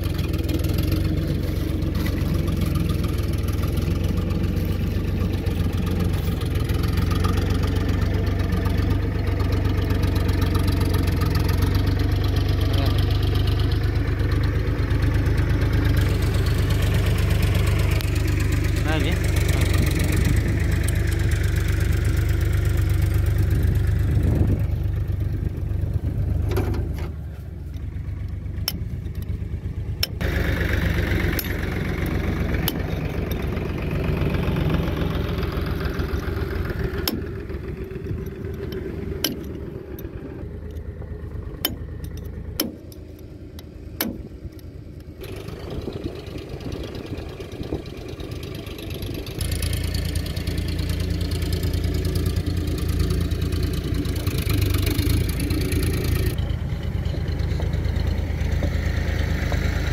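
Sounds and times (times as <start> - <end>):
low engine rumble: 0.0 - 59.9
sharp metal taps: 41.6 - 44.7.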